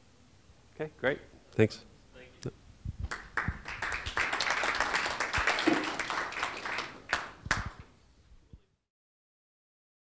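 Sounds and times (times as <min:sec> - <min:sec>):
audience applauding: 0:03.1 - 0:07.9.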